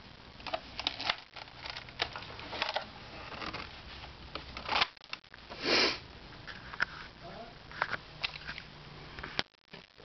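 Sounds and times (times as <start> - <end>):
handling clicks and rustles: 0.4 - 5.4.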